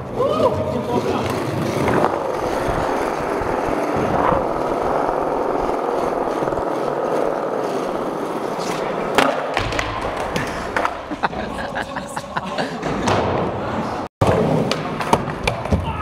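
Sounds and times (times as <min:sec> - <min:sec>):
skateboard wheels rolling on concrete: 0:00.0 - 0:11.9
skateboard clack: 0:01.0 - 0:11.4.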